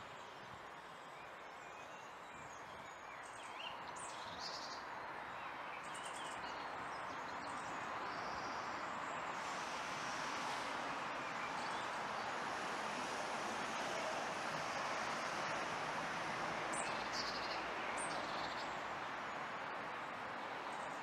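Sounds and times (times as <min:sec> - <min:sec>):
steady rushing noise: 0:08.6 - 0:21.0.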